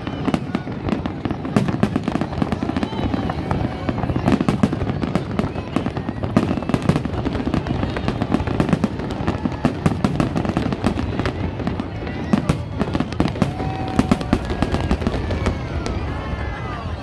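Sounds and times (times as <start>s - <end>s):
fireworks bursting: 0.0s - 17.0s.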